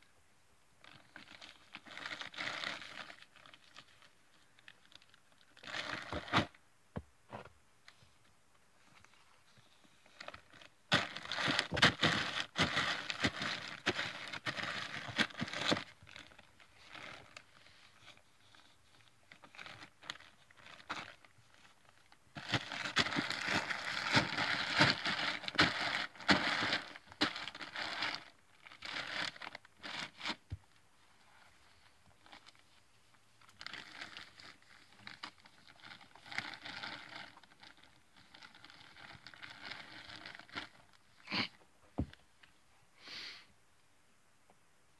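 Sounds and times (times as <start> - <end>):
bag crinkling and rustling: 9.0 - 18.2, 19.0 - 30.5.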